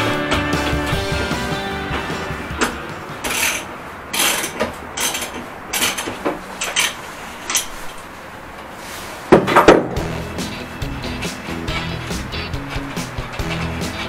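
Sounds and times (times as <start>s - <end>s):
metal tools clinking: 2.6s - 8.0s
tools clattering: 2.6s - 8.1s, 9.3s - 14.0s.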